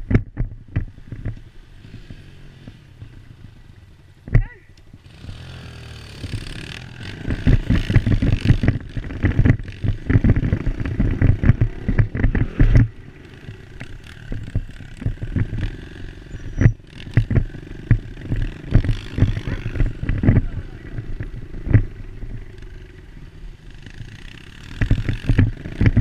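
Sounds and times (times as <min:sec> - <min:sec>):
dirt bike engine running: 0:00.0 - 0:26.0
sharp rattling knocks: 0:06.2 - 0:15.8, 0:16.6 - 0:20.4.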